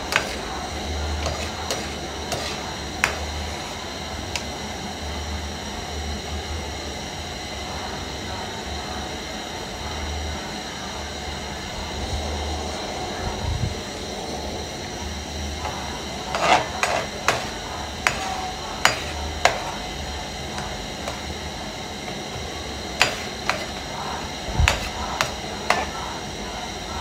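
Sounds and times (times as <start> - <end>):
metal spoon scraping frying pan: 0.0 - 0.5, 1.1 - 3.6, 15.6 - 19.8, 23.0 - 24.0, 24.6 - 26.1.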